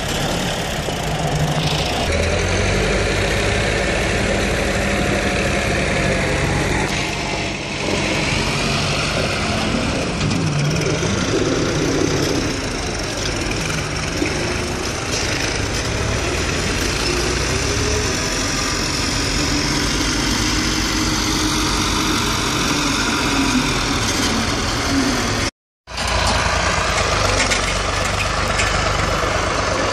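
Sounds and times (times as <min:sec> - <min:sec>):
diesel tractor engine running: 0:00.0 - 0:29.9.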